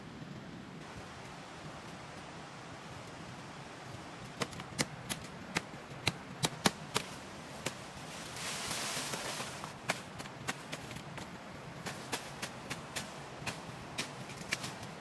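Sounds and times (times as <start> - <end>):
leaves rustling: 0.8 - 15.0
blade chopping sapling: 4.3 - 7.8, 9.1 - 15.0.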